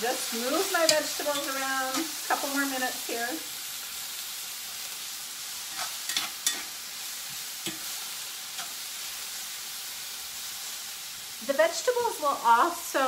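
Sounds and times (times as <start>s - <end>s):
vegetables sizzling in a skillet: 0.0s - 13.0s
utensil scraping a pan: 5.6s - 8.8s.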